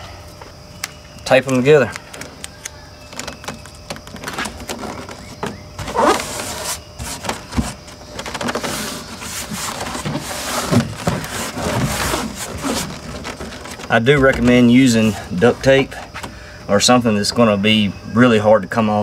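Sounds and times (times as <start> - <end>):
tape crinkling on cardboard: 0.8 - 16.3
palms rubbing tape: 1.3 - 16.3.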